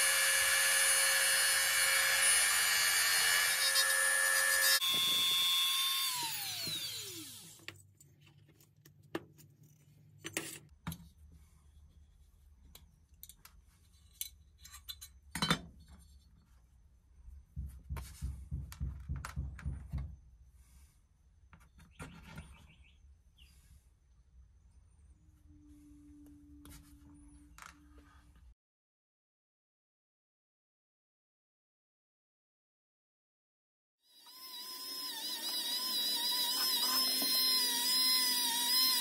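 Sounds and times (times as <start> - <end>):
rotary tool whine spinning down: 0.0 - 7.6, 34.2 - 39.0.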